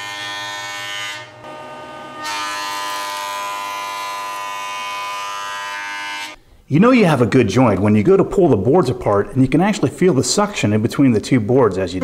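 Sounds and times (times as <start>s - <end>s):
jointer cutting wood: 0.0s - 6.4s.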